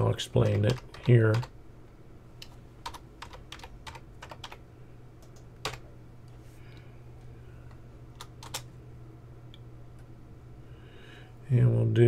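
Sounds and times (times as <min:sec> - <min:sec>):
low steady hum: 0:00.0 - 0:12.0
computer keyboard typing: 0:00.4 - 0:01.5, 0:02.8 - 0:04.6, 0:05.2 - 0:05.8, 0:08.2 - 0:08.7.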